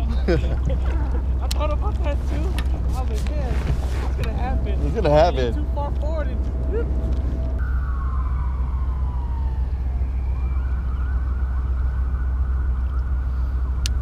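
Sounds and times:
wind rumbling on microphone: 0.0 - 14.0.

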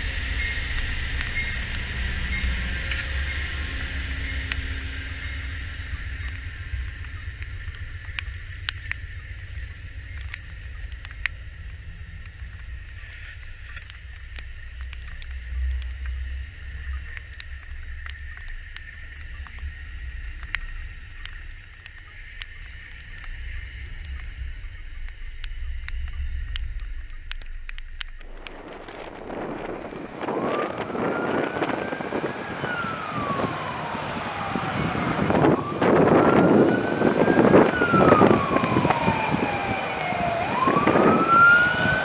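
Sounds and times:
rushing noise: 0.0 - 13.5, 23.1 - 42.0
train wheels rumbling on rail: 0.0 - 42.0.

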